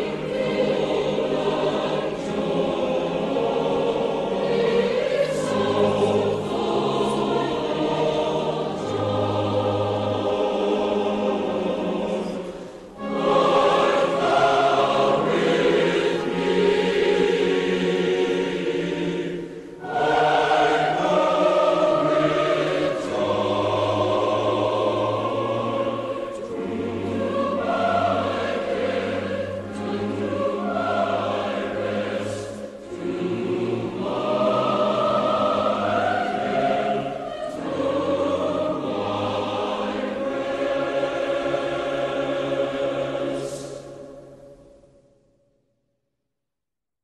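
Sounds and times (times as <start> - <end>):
choir singing: 0.0 - 45.1.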